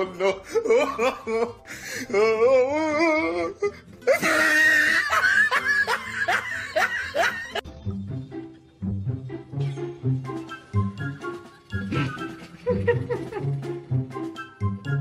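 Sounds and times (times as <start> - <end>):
person laughing: 0.0 - 7.6, 11.6 - 13.8
background music: 0.0 - 15.0.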